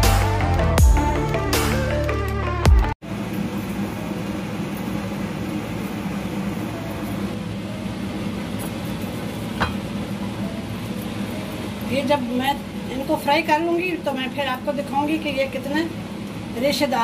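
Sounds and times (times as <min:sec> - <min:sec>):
electronic background music: 0:00.0 - 0:03.0.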